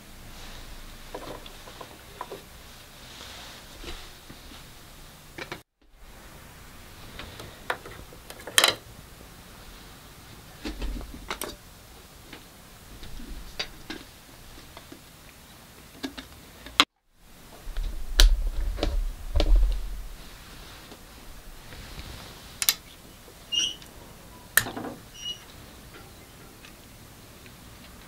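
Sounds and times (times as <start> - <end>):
low thumps: 17.3 - 22.0.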